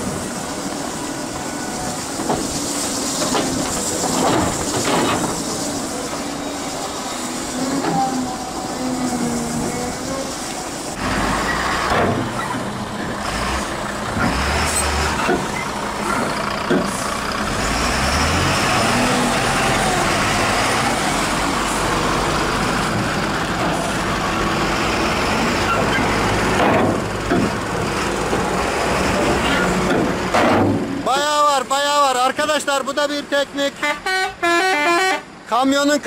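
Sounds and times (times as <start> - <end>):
diesel truck engine running: 0.0 - 34.0
soil being dumped: 0.2 - 12.5
truck bed clunks: 3.2 - 5.5, 11.8 - 13.1, 15.1 - 17.0, 25.6 - 27.7, 29.2 - 31.0.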